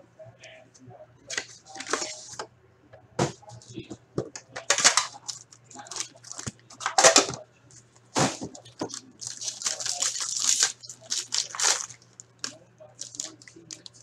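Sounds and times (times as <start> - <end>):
foil wrapper crinkling: 4.6 - 7.0, 8.6 - 14.0.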